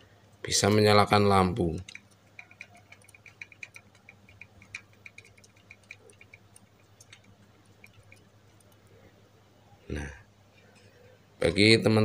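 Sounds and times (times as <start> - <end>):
bicycle dynamo ticking: 1.7 - 8.8.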